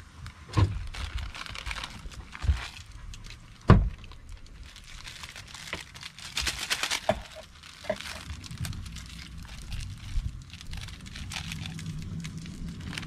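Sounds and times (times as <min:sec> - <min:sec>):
noodle packet crinkling: 0:00.7 - 0:13.0.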